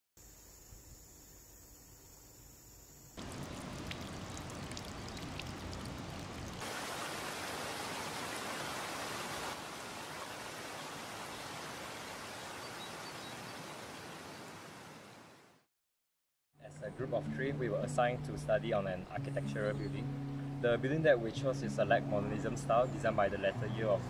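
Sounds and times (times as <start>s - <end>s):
faint insect chirring: 0.2s - 5.8s
stream rushing over rocks: 3.2s - 15.4s.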